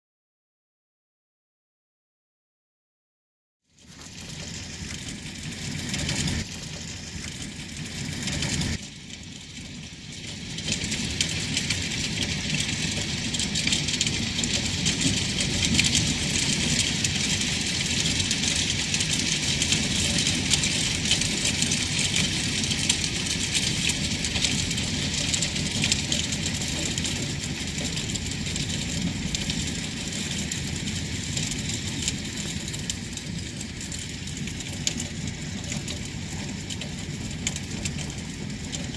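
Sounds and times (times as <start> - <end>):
ice pellets on roof and gutter: 3.7 - 38.9.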